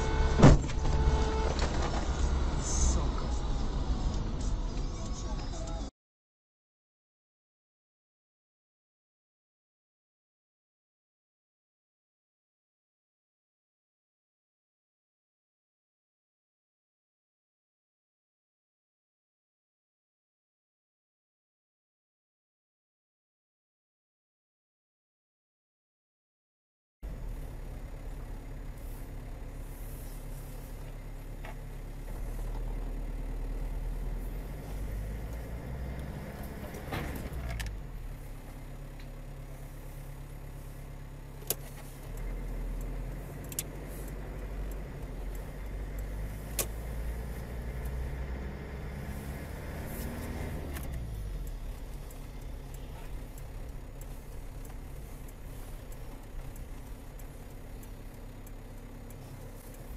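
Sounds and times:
car engine: 0.0s - 5.9s, 27.0s - 59.9s
road noise inside car: 0.0s - 5.9s, 27.0s - 59.9s.

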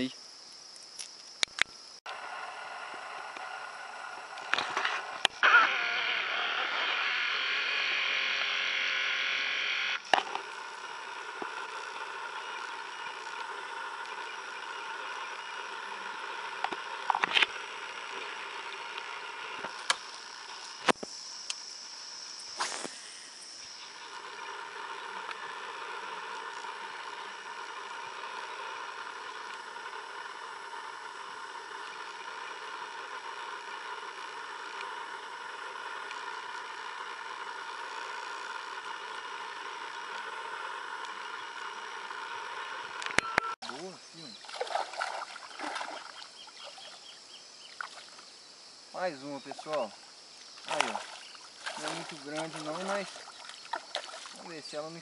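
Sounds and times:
frogs calling: 0.0s - 55.0s
insects trilling: 0.0s - 55.0s.

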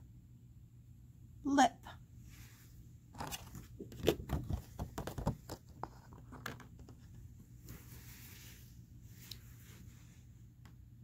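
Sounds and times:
soft brushing: 2.2s - 2.9s, 7.0s - 10.6s
cards clicking and rustling: 3.2s - 7.2s.

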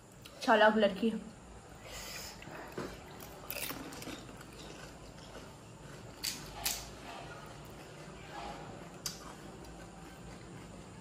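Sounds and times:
chewing food: 2.4s - 11.0s.

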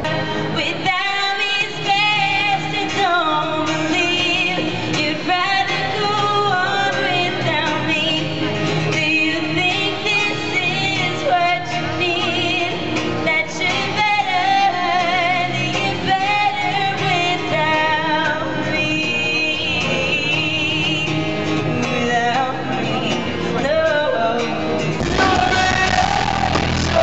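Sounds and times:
acoustic guitar: 0.0s - 27.0s
woman singing a slow pop song: 0.0s - 27.0s.

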